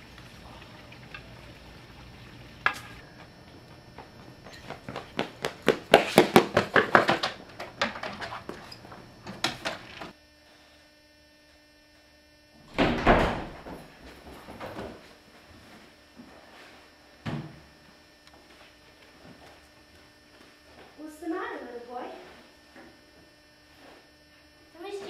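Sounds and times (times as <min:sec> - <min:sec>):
quick running footsteps: 0:03.2 - 0:09.5
door banging shut: 0:12.7 - 0:13.9.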